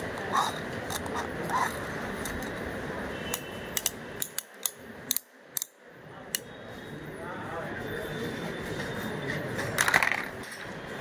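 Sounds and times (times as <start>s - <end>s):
plastic toy clicking: 0.4s - 1.3s, 3.3s - 6.5s.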